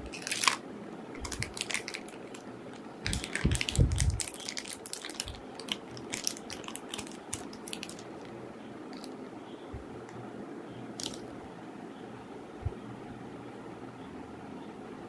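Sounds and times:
metallic bag crinkling: 0:00.0 - 0:00.6, 0:01.2 - 0:08.3.

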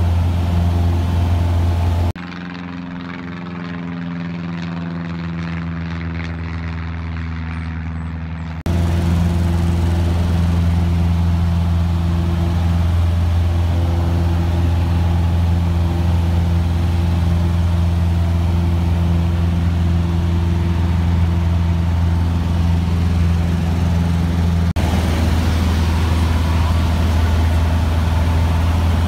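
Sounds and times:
light aircraft engine droning: 0:00.0 - 0:29.0.

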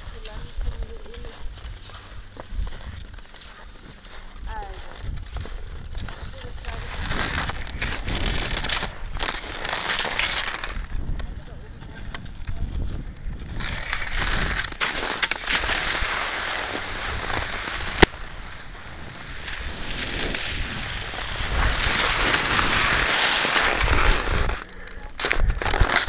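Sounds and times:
skis scraping over snow: 0:00.0 - 0:26.0
wind rumbling on microphone: 0:00.0 - 0:26.0
sharp crack: 0:06.7 - 0:26.0.

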